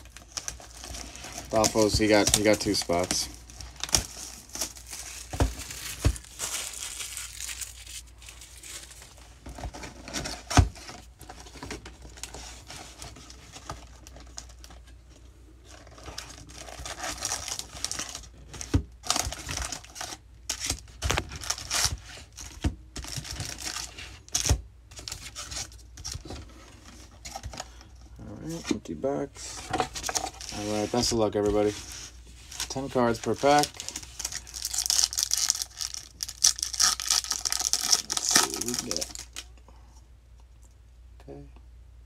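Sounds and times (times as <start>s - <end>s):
foil packs rustling: 0.0s - 14.8s, 29.4s - 39.4s
plastic and cardboard crinkling: 0.0s - 39.5s.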